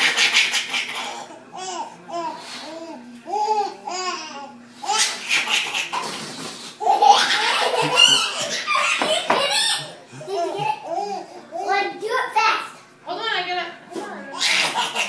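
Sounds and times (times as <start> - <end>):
baby laughing: 0.0 - 1.9, 3.3 - 6.1, 6.8 - 11.7, 14.4 - 15.0.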